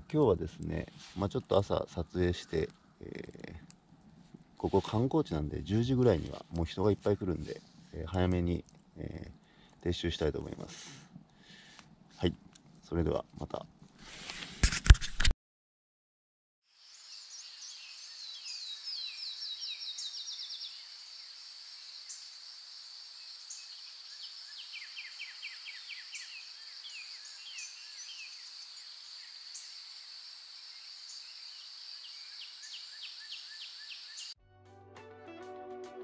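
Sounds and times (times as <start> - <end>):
birds chirping and singing: 17.2 - 21.0, 23.4 - 29.8, 30.6 - 34.4.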